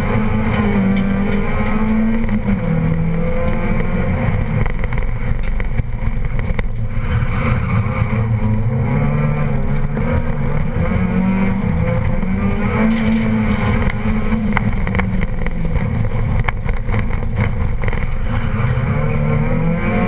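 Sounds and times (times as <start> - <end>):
car engine revving: 0.0 - 20.0
sharp clicks and knocks: 0.1 - 7.1, 9.7 - 18.4.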